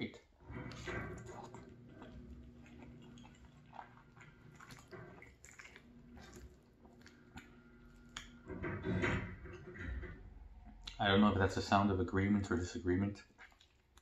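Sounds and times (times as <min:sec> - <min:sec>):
person chewing food: 0:00.7 - 0:08.4, 0:13.2 - 0:14.0.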